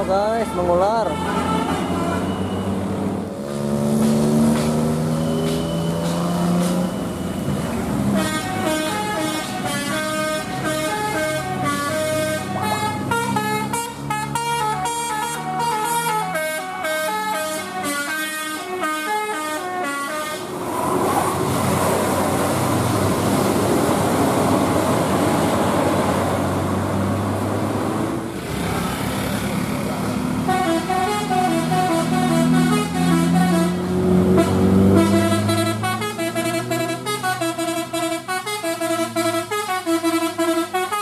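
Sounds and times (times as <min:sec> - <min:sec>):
bus engine and road noise: 0:00.0 - 0:41.0
bus horn playing melody: 0:00.4 - 0:02.5, 0:08.0 - 0:20.5, 0:30.4 - 0:41.0.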